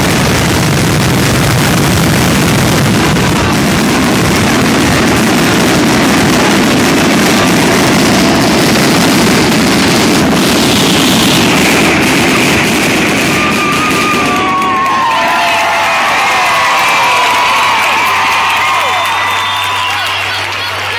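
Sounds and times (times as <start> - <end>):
fireworks barrage: 0.0 - 20.9
people cheering and whistling: 10.7 - 20.9.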